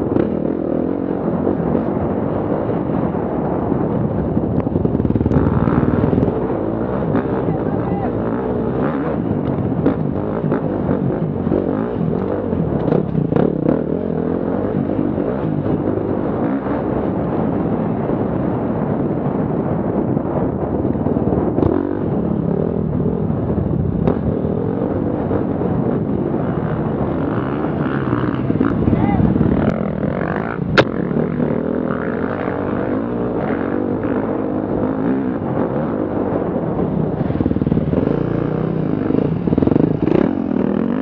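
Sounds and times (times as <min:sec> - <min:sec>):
motorcycle engine revving: 0:00.0 - 0:41.0
wind noise: 0:00.0 - 0:41.0.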